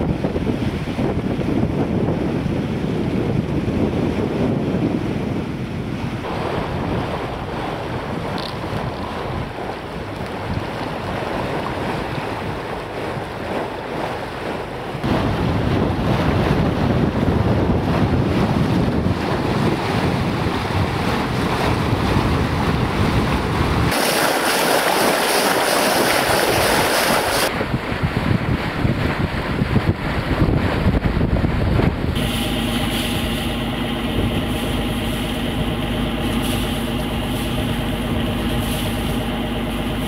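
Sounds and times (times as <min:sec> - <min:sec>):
water rushing along hull: 0:00.0 - 0:40.0
wind buffeting microphone: 0:00.0 - 0:40.0
bow wave spraying hiss: 0:32.2 - 0:35.6, 0:36.2 - 0:40.0.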